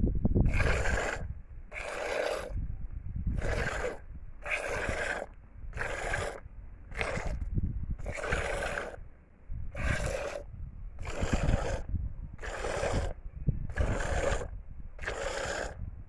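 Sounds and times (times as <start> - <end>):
low rumble: 6.4 - 8.1.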